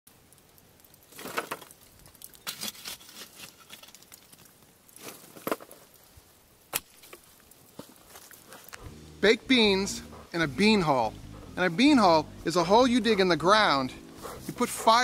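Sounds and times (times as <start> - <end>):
light crackling of coals: 0.1 - 15.0
shovel scraping charcoal: 1.1 - 5.9, 14.1 - 15.0.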